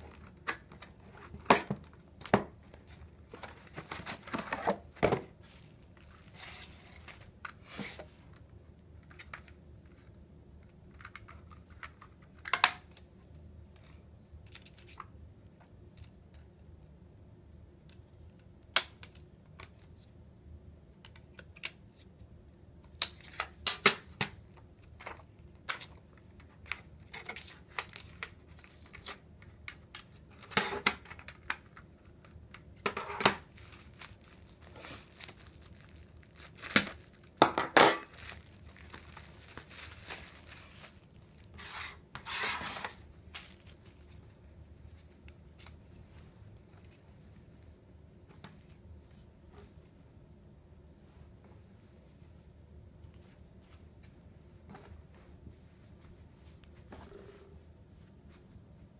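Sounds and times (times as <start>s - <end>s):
hands handling cardboard packaging: 0.0s - 13.0s, 22.9s - 47.5s.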